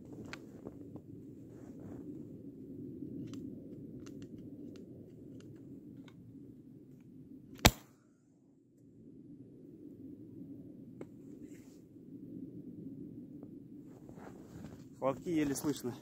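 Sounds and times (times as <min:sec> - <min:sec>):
grenade launcher shot: 0:07.6 - 0:07.8.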